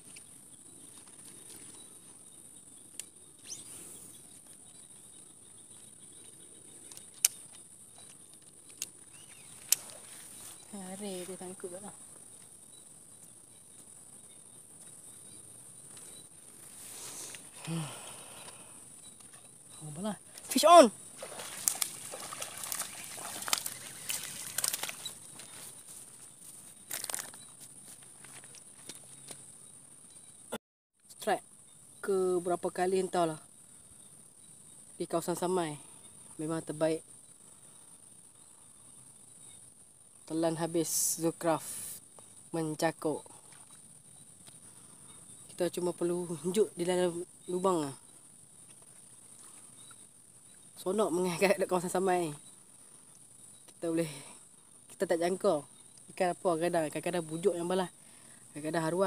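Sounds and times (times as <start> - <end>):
insects chirring: 0.0 - 59.0
clicks and crackles: 6.8 - 9.9, 22.7 - 25.5, 26.9 - 27.4
small water splashes: 20.4 - 25.2
trickling water: 20.4 - 25.2.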